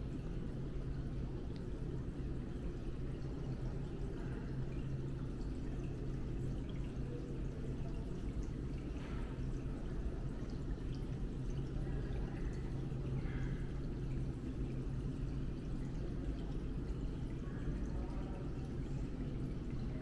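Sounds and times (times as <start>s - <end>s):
faint light clicks: 1.5s - 1.7s.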